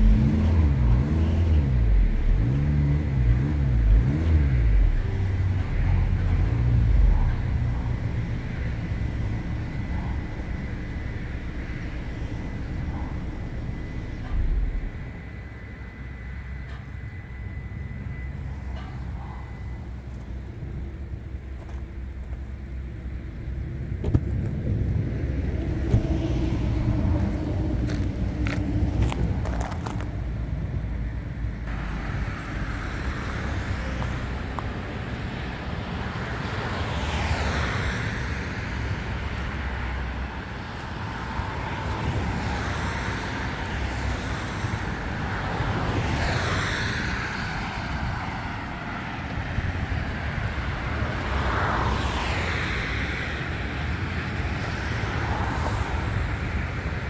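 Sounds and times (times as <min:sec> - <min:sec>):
diesel engine idling: 0:00.0 - 0:36.4.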